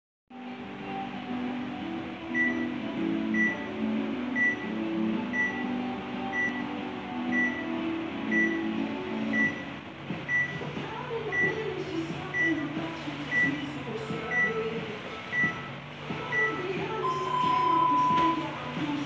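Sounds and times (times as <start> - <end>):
short high beeps: 16.4 - 18.5.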